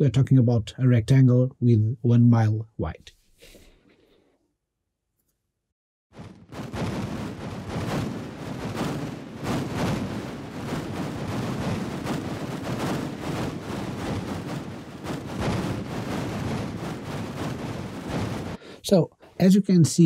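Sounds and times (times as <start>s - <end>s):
close loud gunshots: 6.2s - 18.6s
distant gunfire rumble: 6.2s - 18.6s
explosions: 6.2s - 18.7s.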